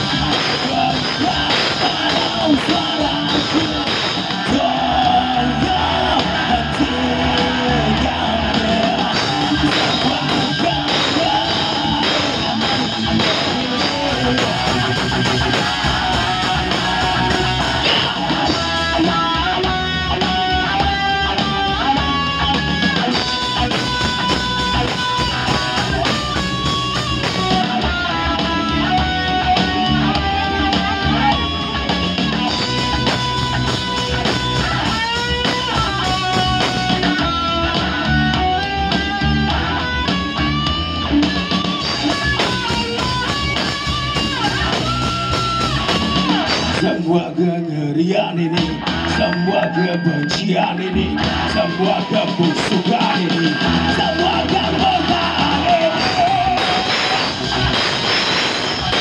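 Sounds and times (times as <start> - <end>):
live rock band playing: 0.0 - 47.4, 48.4 - 59.0
lead guitar melody: 9.1 - 46.7.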